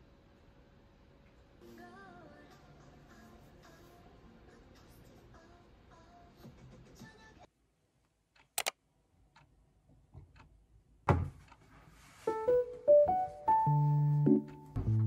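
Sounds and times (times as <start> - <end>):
sharp clicks: 8.4 - 8.8
thump: 11.1 - 11.4
piano-like keyboard music: 12.3 - 15.0.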